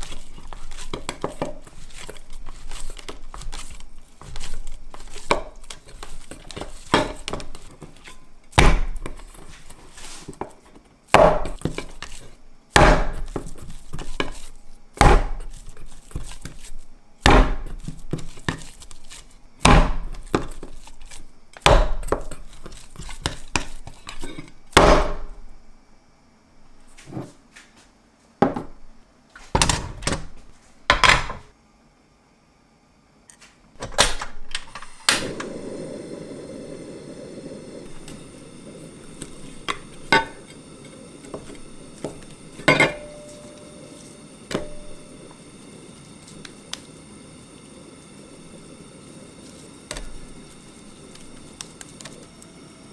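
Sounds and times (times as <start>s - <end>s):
kneading knocks: 15.0s - 15.6s.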